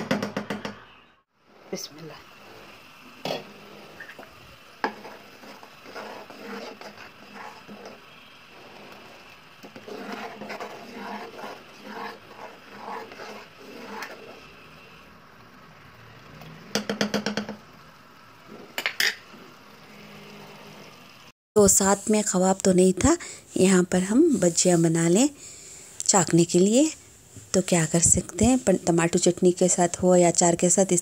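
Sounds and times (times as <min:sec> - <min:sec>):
chutney bubbling in a pot: 0:01.4 - 0:21.2.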